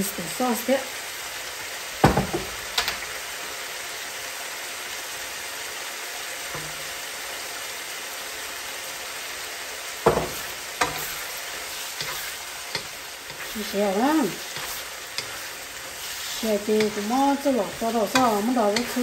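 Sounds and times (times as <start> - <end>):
food sizzling in a pan: 0.0 - 19.0
utensil clacking against pan: 11.9 - 19.0.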